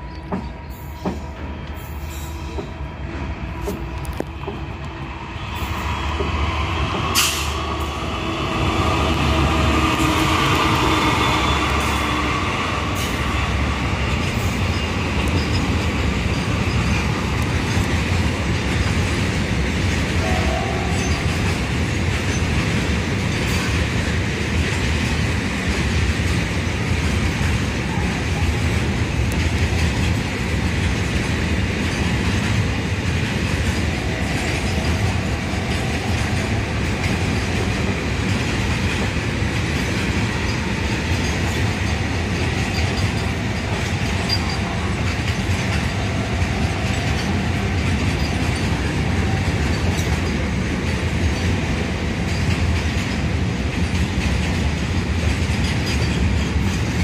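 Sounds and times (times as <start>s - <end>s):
diesel locomotive passing: 0.0s - 57.0s
freight wagons rumbling on rails: 0.0s - 57.0s.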